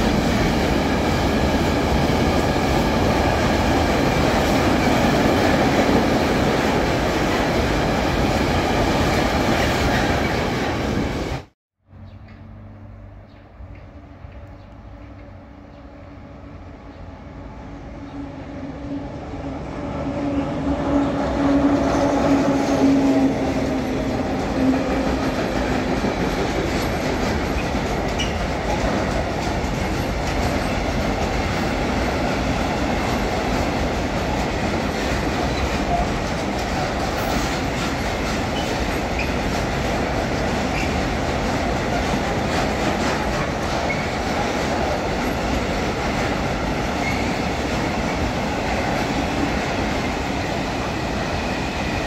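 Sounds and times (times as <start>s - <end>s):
freight wagons rumbling on rails: 20.9s - 52.0s.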